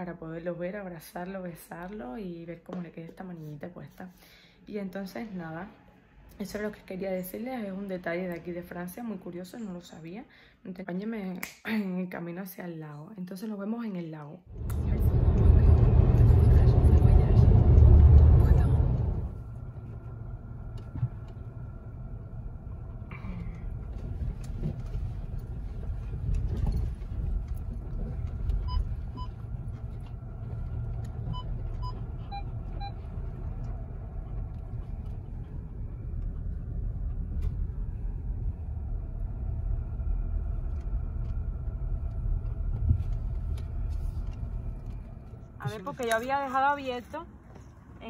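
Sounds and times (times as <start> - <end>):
car engine and tyres rumbling: 14.5 - 48.0.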